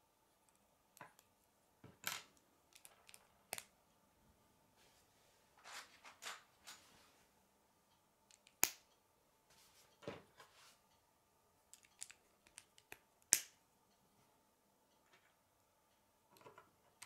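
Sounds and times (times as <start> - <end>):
plastic pieces clicking and rattling: 2.7 - 3.7.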